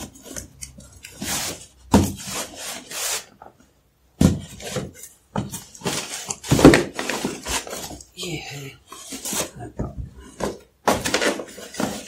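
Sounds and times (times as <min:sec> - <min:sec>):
cardboard rubbing and scraping: 0:01.2 - 0:03.4.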